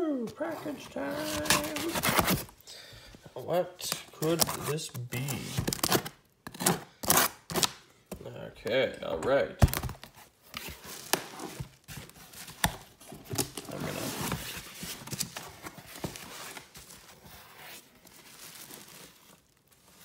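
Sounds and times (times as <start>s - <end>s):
packing tape tearing: 1.0s - 2.5s, 3.8s - 7.8s
cardboard flaps rustling: 9.6s - 20.0s.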